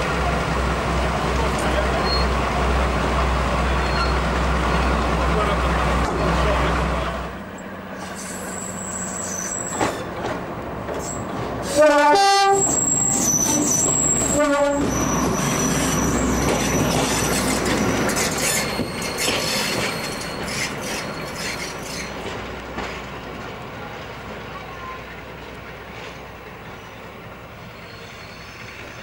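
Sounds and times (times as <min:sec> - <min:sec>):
locomotive engine running: 0:00.0 - 0:29.0
thin high squeals: 0:03.8 - 0:04.9, 0:08.0 - 0:10.1, 0:12.6 - 0:22.2
two-tone locomotive horn: 0:11.7 - 0:13.2, 0:14.3 - 0:15.0.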